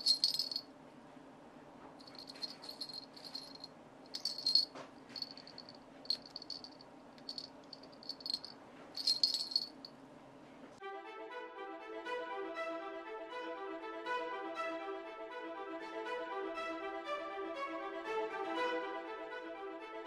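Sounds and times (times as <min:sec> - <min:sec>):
bite alarm bells jingling: 0:00.0 - 0:00.6, 0:02.0 - 0:09.9.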